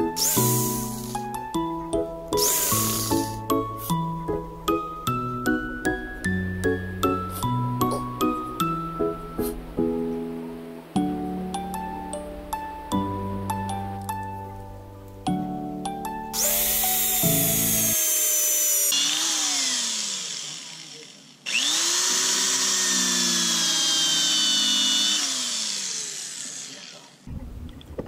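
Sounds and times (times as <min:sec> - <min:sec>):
electric power tool running: 0:00.0 - 0:01.3, 0:02.3 - 0:04.0, 0:16.4 - 0:27.3
background music: 0:00.0 - 0:18.0.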